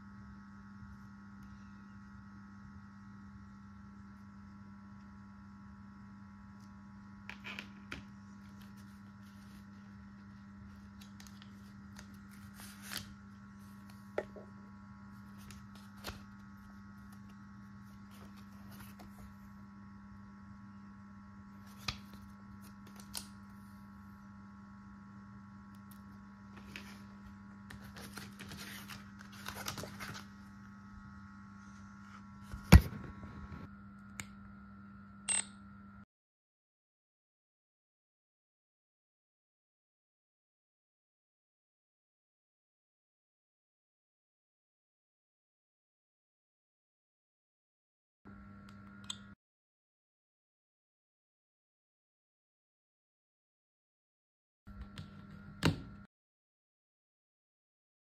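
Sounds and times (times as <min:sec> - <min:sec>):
steady electrical hum: 0:00.0 - 0:36.0
packaging rustling: 0:27.8 - 0:30.3.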